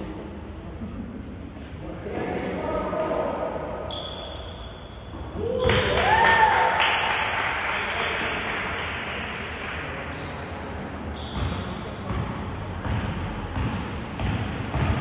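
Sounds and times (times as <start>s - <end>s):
crowd cheering and clapping: 5.6s - 10.0s.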